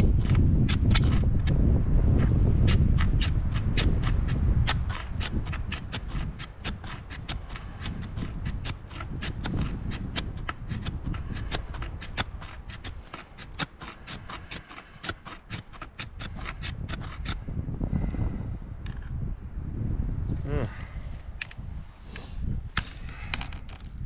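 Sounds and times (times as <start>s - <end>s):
knife scraping metal: 2.6s - 17.4s.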